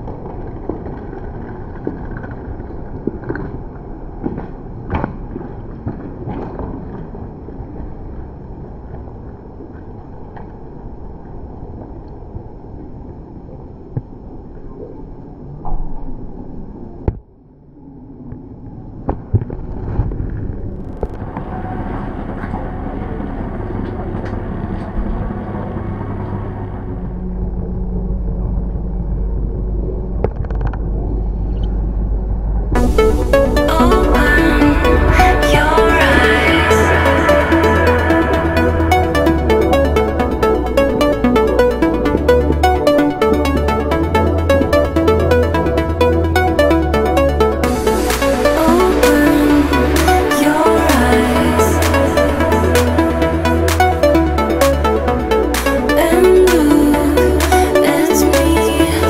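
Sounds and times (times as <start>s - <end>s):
wind rumble: 17.8s - 57.8s.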